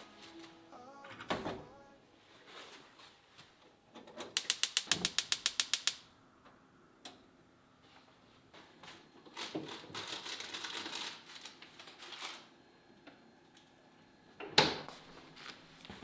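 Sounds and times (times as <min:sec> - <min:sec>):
gas burner lighting: 0:04.2 - 0:06.1
gas igniter clicking: 0:04.3 - 0:06.0.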